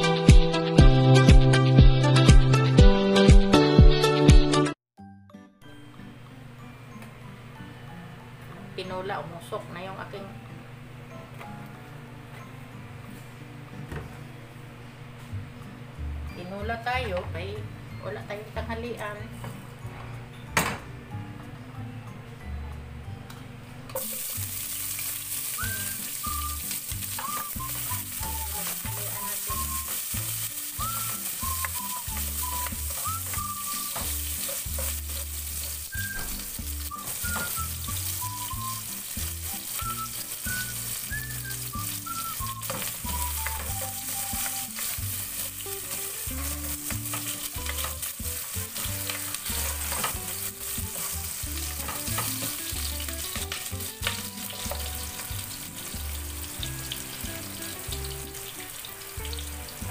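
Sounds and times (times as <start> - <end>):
onions sizzling in hot oil: 24.0 - 59.9.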